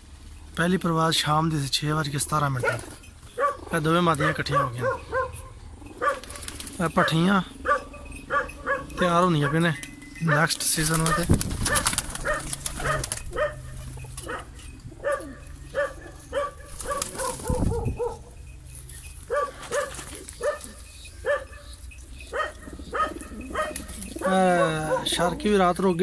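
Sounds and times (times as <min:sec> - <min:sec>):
dog barking: 0:02.6 - 0:06.4, 0:07.0 - 0:09.6, 0:10.3 - 0:18.3, 0:19.3 - 0:25.3.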